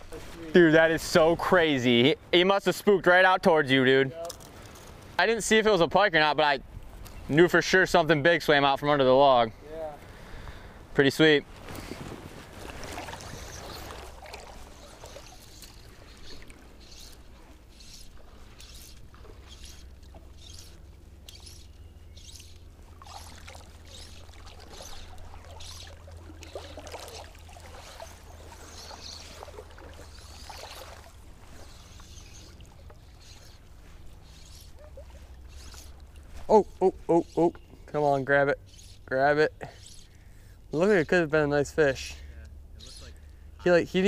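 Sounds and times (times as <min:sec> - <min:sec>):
fly line swishing: 0:11.5 - 0:37.7, 0:38.6 - 0:39.1, 0:39.7 - 0:40.2.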